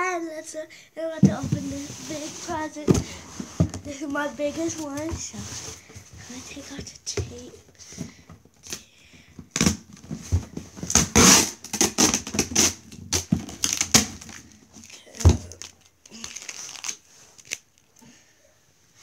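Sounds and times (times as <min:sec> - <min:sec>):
packing tape ripping: 0:10.8 - 0:18.0
paper crinkling: 0:13.4 - 0:18.0.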